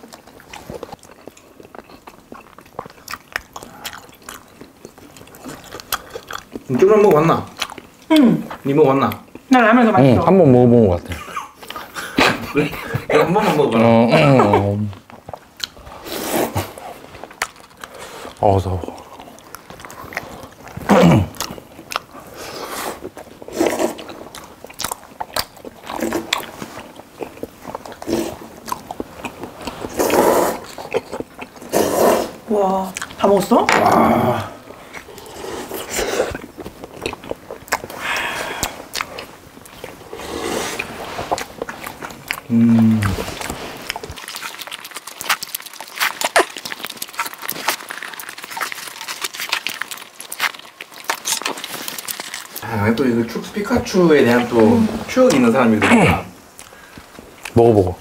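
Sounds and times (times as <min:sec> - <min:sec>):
people chewing food: 0:00.0 - 0:58.0
slurping noodles: 0:15.7 - 0:32.4, 0:33.8 - 0:57.2.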